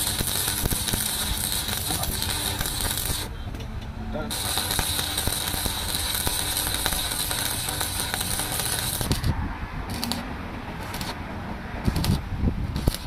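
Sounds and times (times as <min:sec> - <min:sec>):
welding arc crackling hiss: 0:00.0 - 0:03.3, 0:04.3 - 0:09.3, 0:09.9 - 0:10.2, 0:10.8 - 0:11.2, 0:12.8 - 0:13.0.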